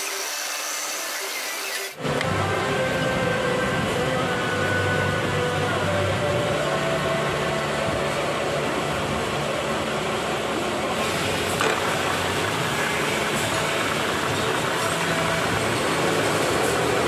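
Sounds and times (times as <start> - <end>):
end mill cutting metal: 0.0 - 2.3, 10.6 - 17.0
workshop machine motor running: 0.0 - 17.0.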